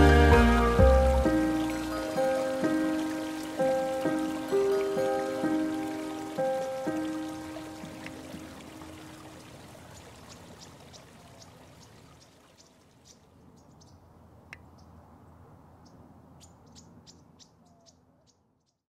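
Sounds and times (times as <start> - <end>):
water-like rush: 0.0 - 13.0.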